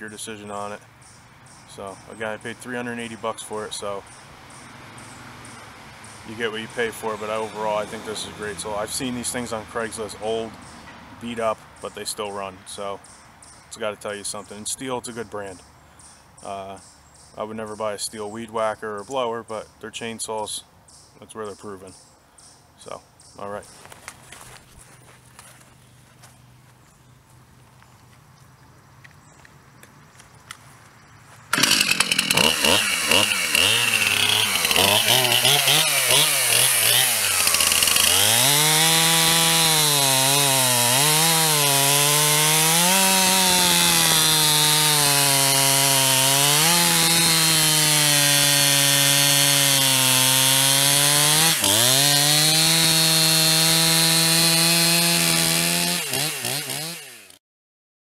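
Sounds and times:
chainsaw cutting log: 4.5s - 10.2s, 31.5s - 57.4s.

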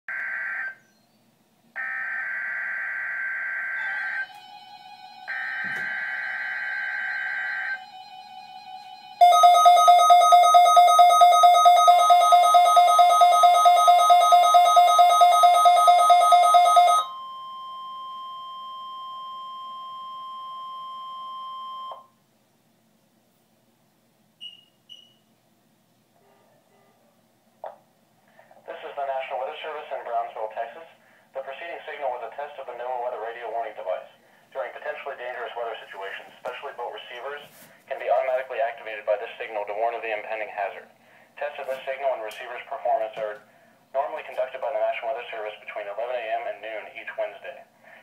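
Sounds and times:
steady warning alarm tone: 0.1s - 0.8s, 1.8s - 22.1s.

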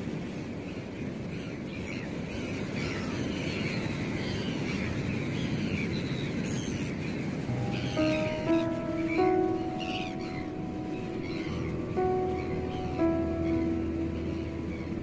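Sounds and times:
wind: 0.0s - 15.0s
sea noise: 4.4s - 15.0s
gulls calling faintly: 7.5s - 15.0s
music: 7.5s - 15.0s.

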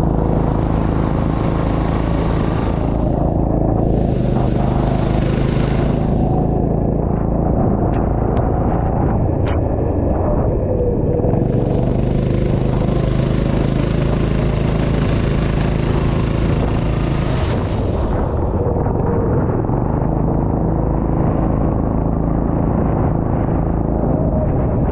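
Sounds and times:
high rushing hiss: 0.0s - 6.6s
go-kart engine running: 0.0s - 9.6s, 10.8s - 24.9s.

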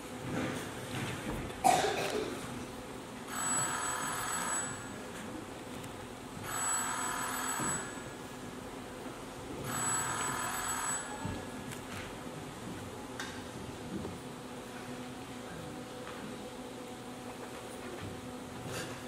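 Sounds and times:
telephone ringing: 3.3s - 4.9s, 6.4s - 8.0s, 9.7s - 11.4s.

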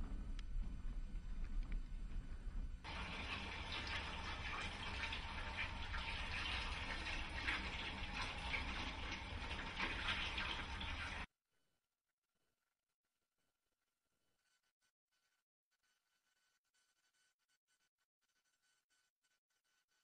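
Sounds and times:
low rumble: 0.0s - 3.7s.

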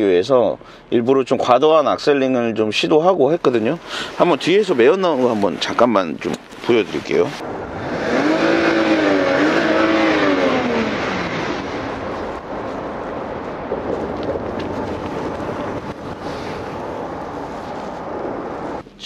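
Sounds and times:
man talking: 0.0s - 7.4s
car exhaust at idle: 7.4s - 17.8s.

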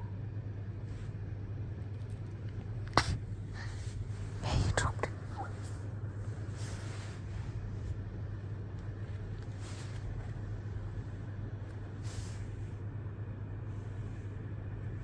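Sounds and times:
low room hum: 0.0s - 15.0s
soft rustling hisses: 3.0s - 12.8s.

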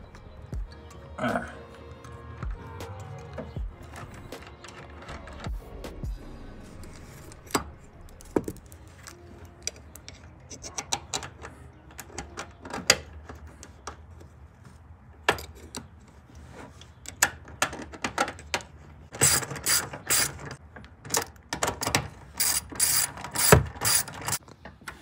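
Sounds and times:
socket ratchet clicking: 19.2s - 21.4s, 22.4s - 24.4s
metal parts clicking: 19.2s - 24.4s.

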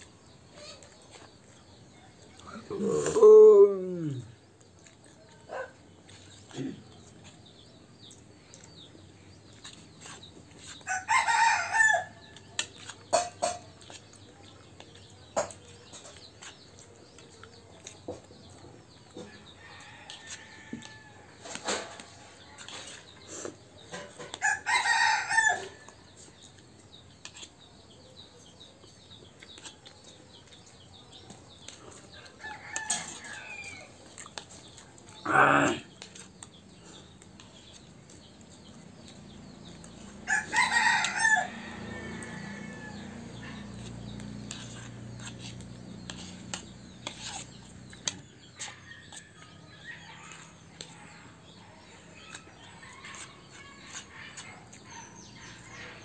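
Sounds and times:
rooster crowing: 10.9s - 12.2s, 24.4s - 25.8s, 40.2s - 43.4s.

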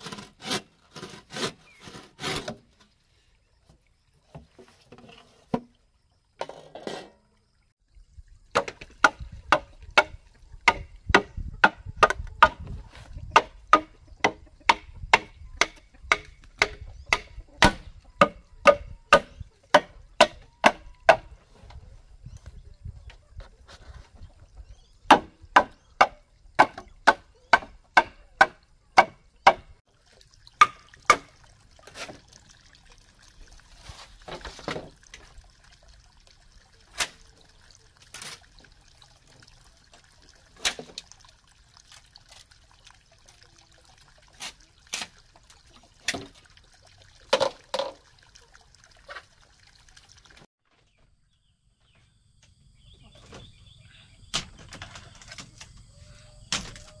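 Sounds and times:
bamboo being chopped: 8.5s - 12.7s, 13.3s - 21.3s, 25.1s - 29.7s.

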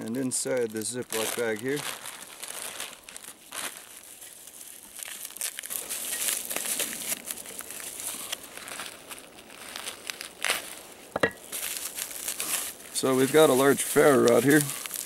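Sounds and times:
plastic crinkling: 0.0s - 15.0s.

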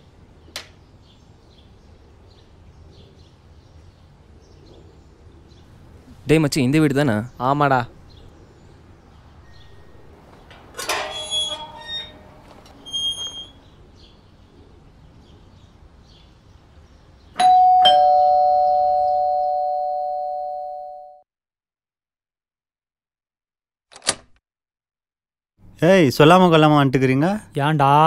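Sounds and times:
metal gate clanking and squeaking: 9.5s - 13.7s
two-tone doorbell chime: 17.4s - 21.2s.

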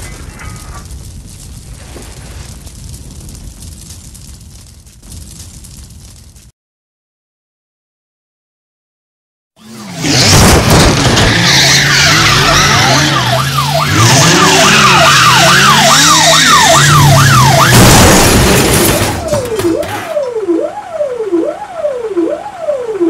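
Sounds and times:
tyres skidding: 9.6s - 20.3s
police siren: 9.6s - 23.0s
car crash with scattering debris: 10.0s - 20.3s.

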